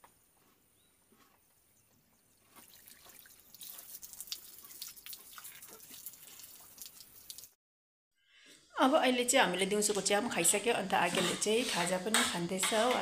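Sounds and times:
hose water splashing on stones: 0:02.5 - 0:07.6.

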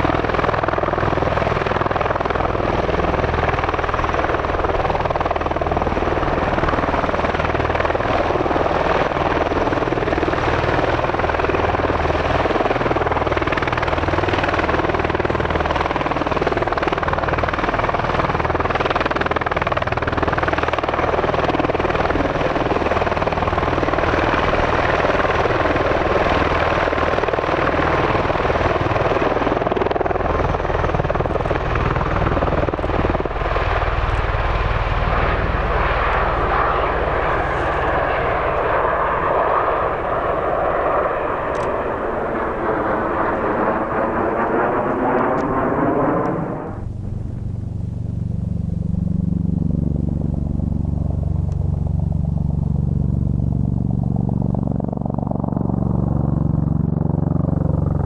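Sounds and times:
tiltrotor aircraft running: 0:00.0 - 0:58.0.

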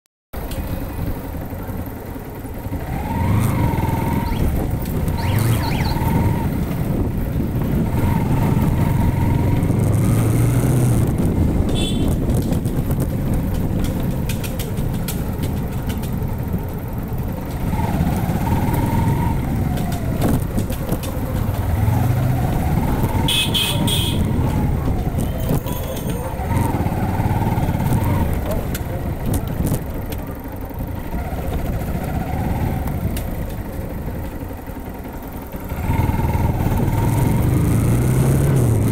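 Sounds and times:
motorcycle engine rumbling: 0:00.4 - 0:38.9.

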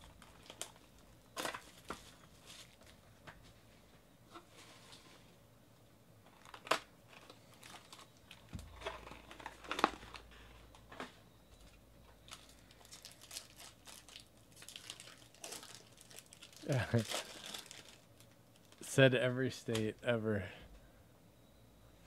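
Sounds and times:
foil wrapper crinkling: 0:00.1 - 0:02.9, 0:06.3 - 0:10.3, 0:12.3 - 0:18.9.

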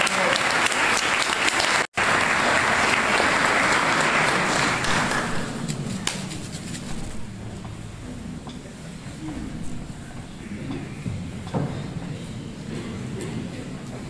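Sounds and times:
crowd applauding: 0:00.0 - 0:06.2.

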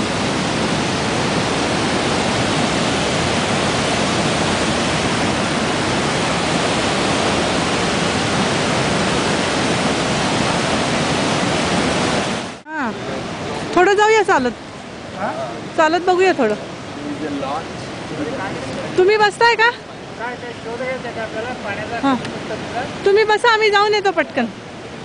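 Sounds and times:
creek rushing over boulders: 0:00.0 - 0:25.0.

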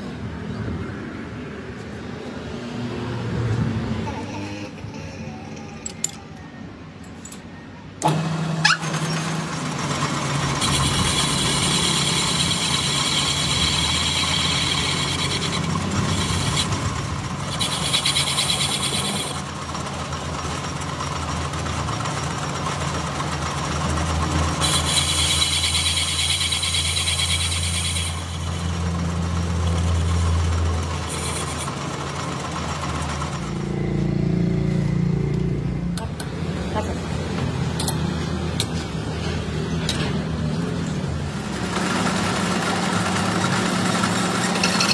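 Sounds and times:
high-pitched metal cutting noise: 0:03.9 - 0:19.6, 0:24.2 - 0:34.4, 0:41.5 - 0:44.9
metal lathe motor hum: 0:08.0 - 0:34.1, 0:41.3 - 0:44.9.

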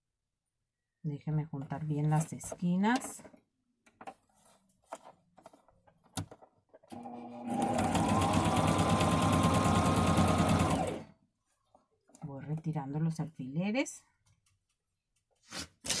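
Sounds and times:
electric sewing machine stitching: 0:06.9 - 0:11.1.

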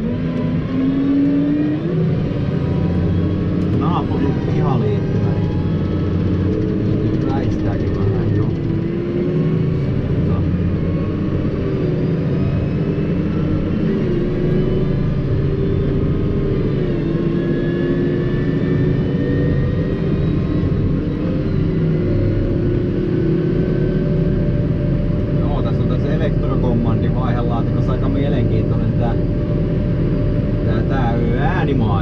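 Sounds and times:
tractor diesel engine: 0:00.0 - 0:26.0.

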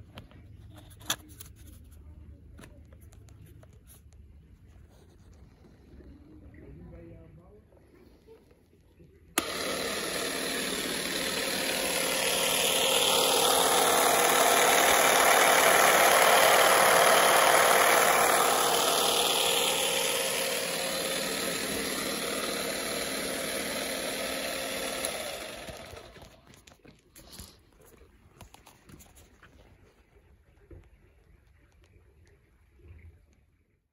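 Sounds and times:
power tool switch click: 0:09.4 - 0:26.3
electric motor hum and clatter: 0:09.4 - 0:29.3.

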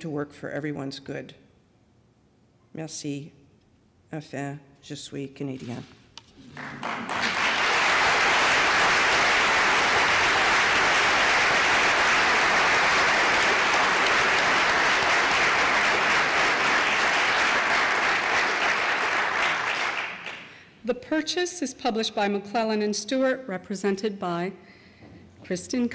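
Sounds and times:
audience applauding: 0:06.4 - 0:20.6.

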